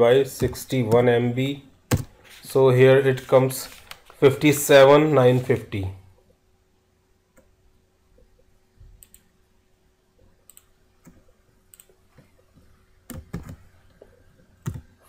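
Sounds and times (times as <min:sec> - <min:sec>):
computer mouse clicks: 0:09.0 - 0:09.3, 0:10.4 - 0:12.4.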